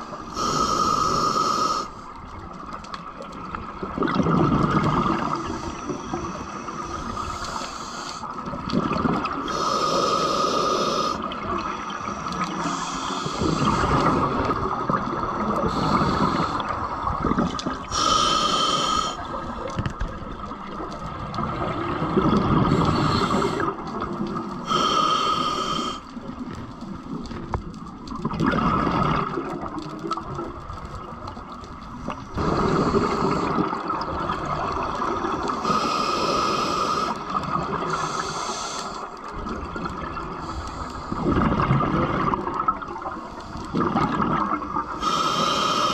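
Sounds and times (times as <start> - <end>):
regulator in-breath hiss: 0.0 - 2.1, 5.2 - 8.4, 9.4 - 14.5, 15.4 - 17.0, 17.8 - 19.6, 22.6 - 23.8, 24.6 - 26.2, 32.1 - 34.1, 35.3 - 39.3, 40.3 - 41.3, 44.9 - 45.9
rush of bubbles: 3.2 - 7.4, 8.4 - 9.6, 11.2 - 18.0, 19.1 - 24.7, 26.2 - 35.6, 39.3 - 45.0.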